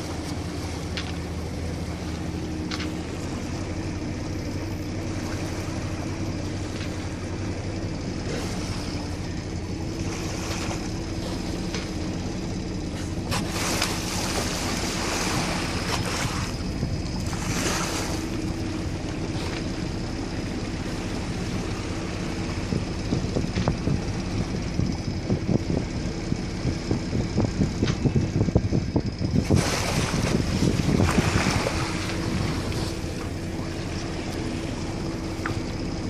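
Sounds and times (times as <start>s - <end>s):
boat engine humming: 0.0s - 36.0s
rushing water noise: 12.8s - 23.5s, 29.4s - 36.0s.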